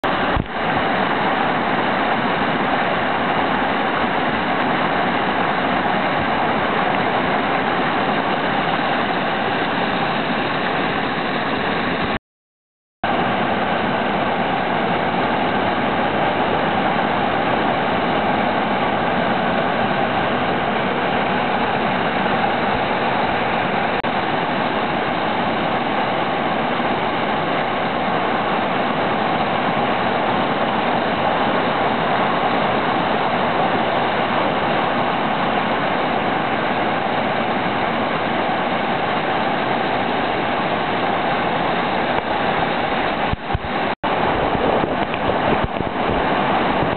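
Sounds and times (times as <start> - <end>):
whitewater rapids rushing: 0.0 - 12.2, 13.1 - 46.9.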